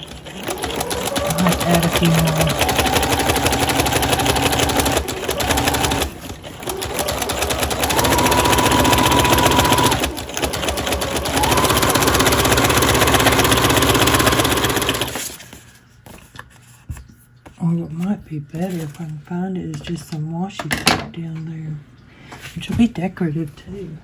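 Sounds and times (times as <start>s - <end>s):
sewing machine stitching: 0.0s - 15.4s.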